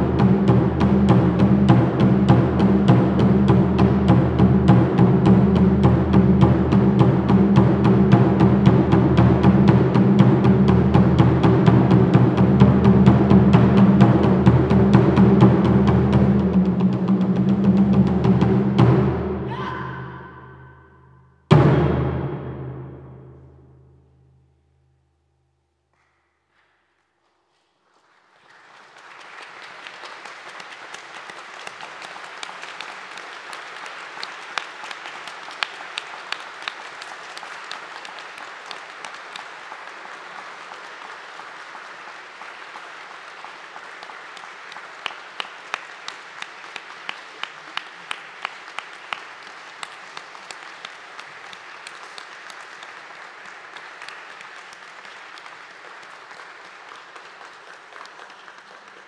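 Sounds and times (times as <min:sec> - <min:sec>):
audience applauding: 0:27.8 - 0:59.0
single claps close to microphone: 0:29.0 - 0:59.0.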